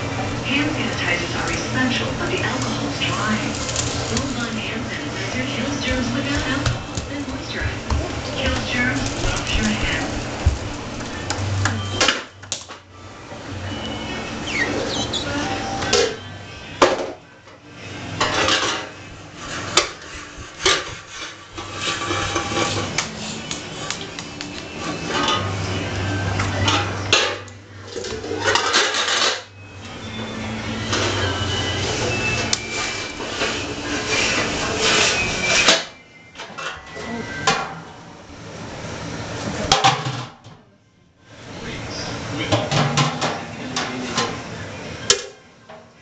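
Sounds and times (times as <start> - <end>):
plate scraping on tile floor: 18.1 - 29.5, 30.1 - 37.7.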